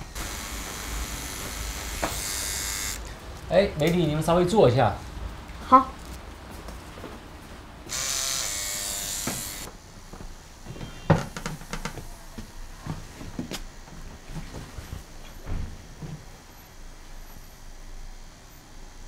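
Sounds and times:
tattoo machine buzzing: 0:00.0 - 0:03.2, 0:07.9 - 0:09.7, 0:10.6 - 0:12.0.

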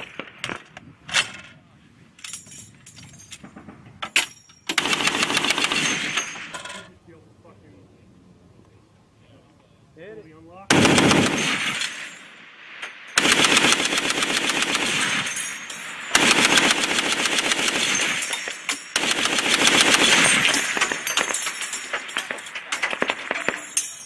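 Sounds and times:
heavy machine gun firing: 0:04.7 - 0:06.4, 0:10.7 - 0:12.1, 0:13.2 - 0:15.4, 0:16.1 - 0:23.8.

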